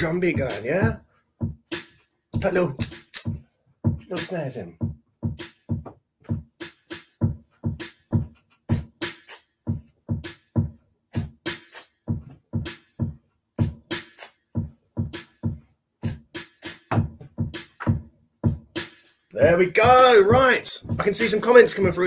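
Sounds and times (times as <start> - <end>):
kick drum hits: 0.0 - 1.7, 2.4 - 4.1, 4.8 - 6.5, 9.7 - 10.8, 12.1 - 13.8, 14.6 - 15.6, 16.9 - 18.6, 19.8 - 22.0
snare drum hits: 20.0 - 21.9.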